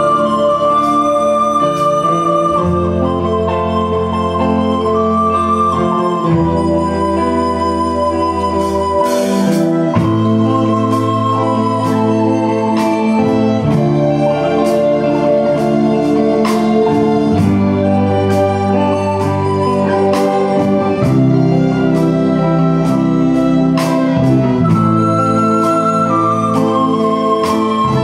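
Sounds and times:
bass line: 0:00.0 - 0:28.0
electronic keyboard chords: 0:00.0 - 0:28.0
recorder playing a slow melody: 0:00.0 - 0:28.0
steady drum beat: 0:09.0 - 0:28.0.

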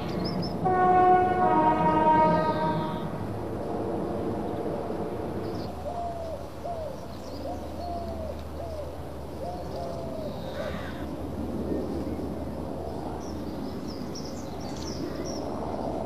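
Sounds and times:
dove cooing: 0:05.8 - 0:11.0.

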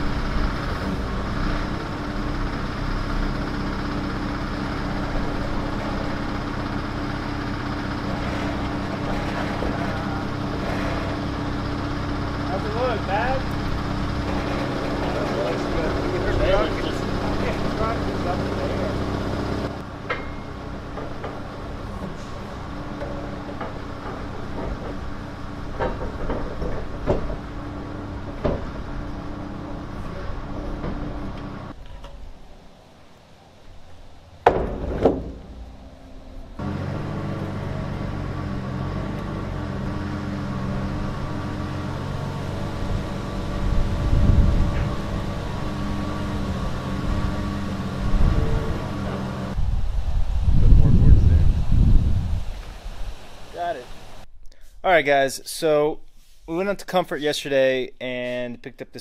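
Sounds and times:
vehicle engine idling: 0:00.0 - 0:31.8, 0:34.2 - 0:49.8
low hum: 0:00.0 - 0:54.5
knocks on wooden deck: 0:34.4 - 0:35.5.

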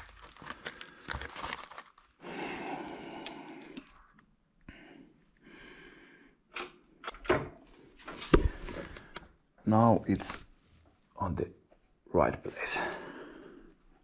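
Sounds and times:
person breathing out: 0:02.2 - 0:04.0.

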